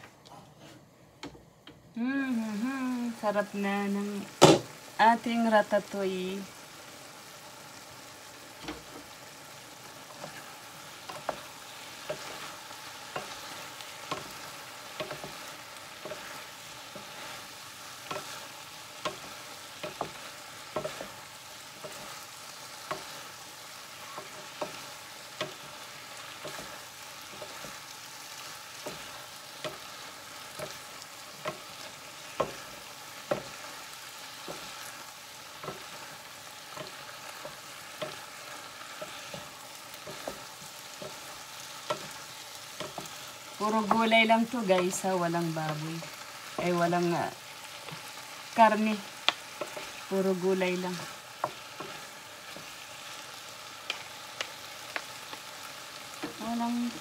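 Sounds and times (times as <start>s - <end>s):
vegetables sizzling in a pan: 0.0s - 57.0s
wooden spatulas scraping a pan: 0.3s - 0.8s, 10.0s - 46.8s, 47.6s - 55.4s.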